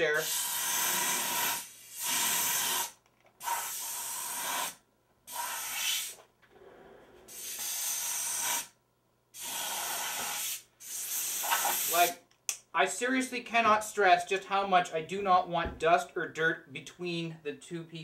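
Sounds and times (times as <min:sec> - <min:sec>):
compressed air duster hissing: 0:00.1 - 0:06.2, 0:07.3 - 0:08.7, 0:09.4 - 0:12.2.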